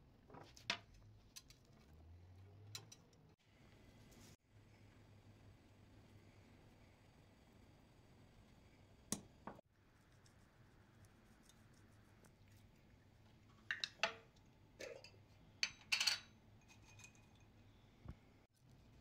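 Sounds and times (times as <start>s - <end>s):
kitchen utensils clinking: 14.8s - 17.5s.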